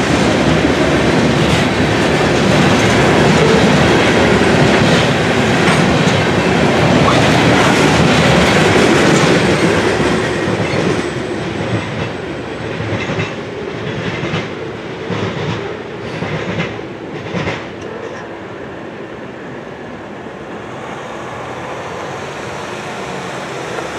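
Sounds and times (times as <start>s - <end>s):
train wheels clattering over rails: 0.0s - 17.8s.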